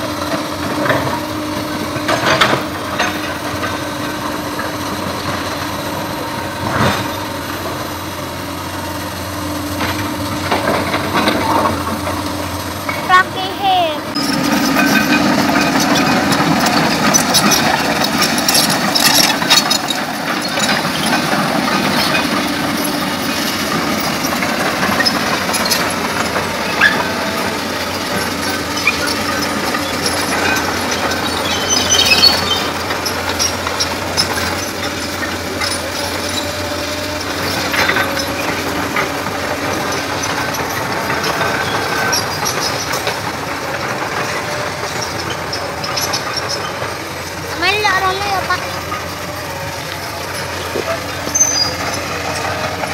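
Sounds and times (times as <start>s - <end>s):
excavator diesel engine drone: 0.0s - 52.9s
metallic clanks and rattles: 14.1s - 52.9s.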